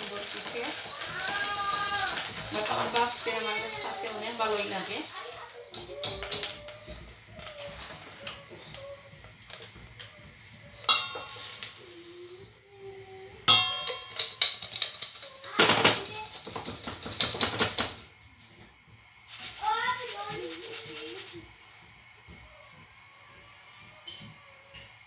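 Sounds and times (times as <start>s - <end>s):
metal cookware clattering: 0.0s - 6.6s, 10.7s - 11.8s, 13.5s - 18.1s
grains rattling in sieve: 0.0s - 12.0s, 19.1s - 21.6s.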